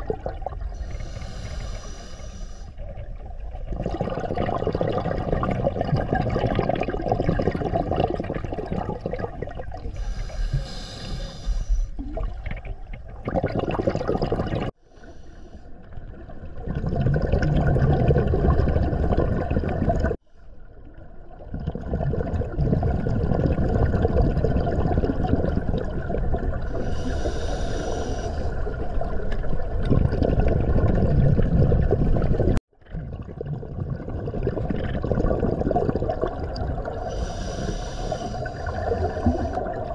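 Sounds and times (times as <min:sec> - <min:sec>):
hissing regulator inhales: 0:00.7 - 0:02.8, 0:09.9 - 0:12.0, 0:26.8 - 0:28.6, 0:37.1 - 0:39.7.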